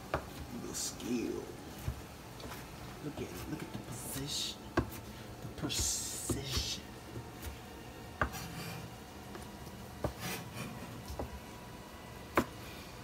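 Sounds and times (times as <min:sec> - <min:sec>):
knife scraping through meat: 0:08.3 - 0:08.9, 0:10.1 - 0:10.9.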